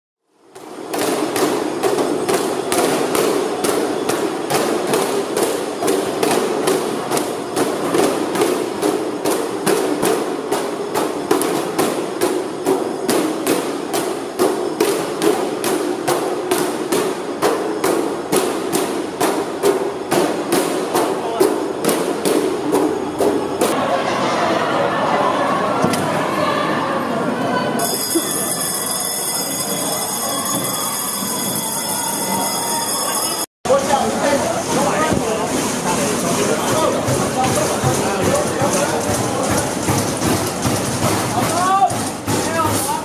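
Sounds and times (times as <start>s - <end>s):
dense continuous din: 0.4s - 28.2s, 29.2s - 43.0s
sharp rhythmic knocks: 0.5s - 23.8s, 34.6s - 43.0s.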